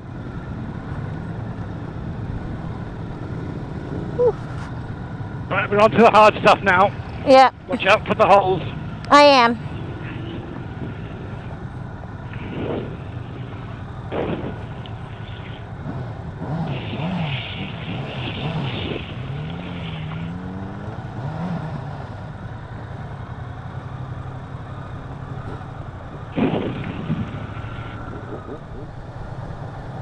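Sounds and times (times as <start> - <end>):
motorcycle engine revving: 0.0 - 30.0
sharp thumps: 12.3 - 15.7, 25.4 - 29.0.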